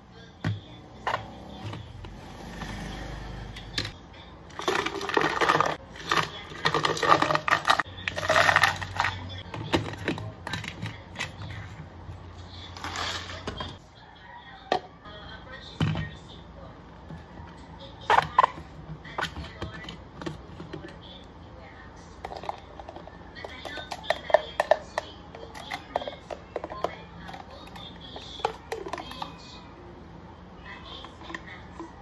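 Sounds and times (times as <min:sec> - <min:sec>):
ice cubes rattling in plastic bottle: 0:04.6 - 0:10.8.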